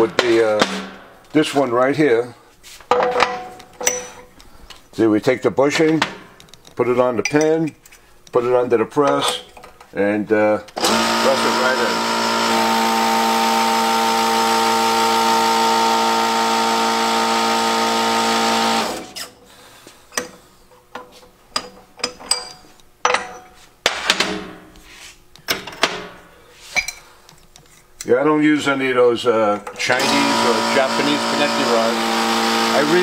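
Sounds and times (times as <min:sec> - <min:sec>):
hydraulic press running: 0:00.0 - 0:01.3, 0:10.8 - 0:19.4, 0:29.7 - 0:33.0
metallic clinks and knocks: 0:02.9 - 0:04.3, 0:21.0 - 0:23.6.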